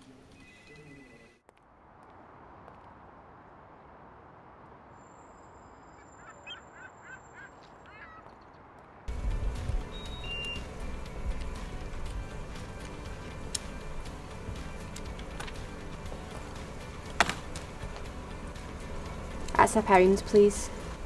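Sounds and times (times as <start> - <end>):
background music: 9.1 - 21.0.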